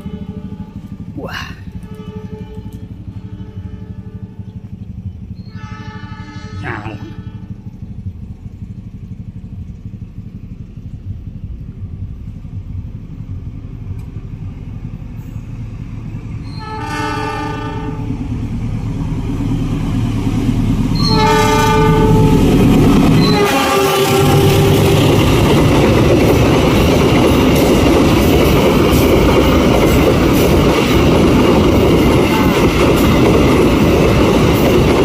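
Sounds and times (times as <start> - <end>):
locomotive engine rumble: 0.0 - 35.0
locomotive horn blasts: 1.7 - 4.6, 5.5 - 7.8, 16.5 - 18.2, 21.0 - 25.4, 32.2 - 33.0.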